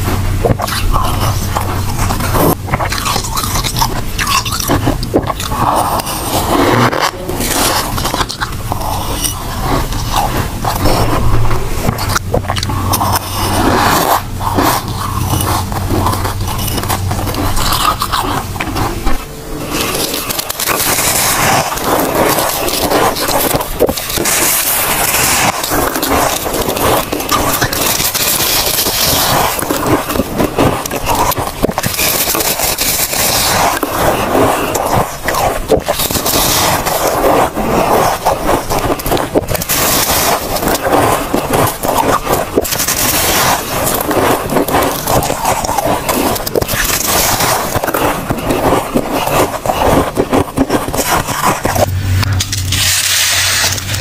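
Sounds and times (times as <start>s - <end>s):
crunching frost: 0.0s - 54.0s.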